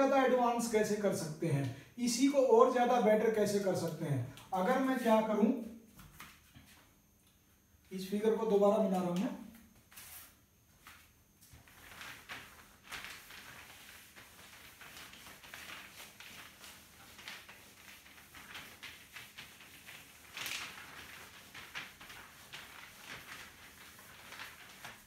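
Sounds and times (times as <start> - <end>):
cloth rubbing on whiteboard: 9.9 - 25.0.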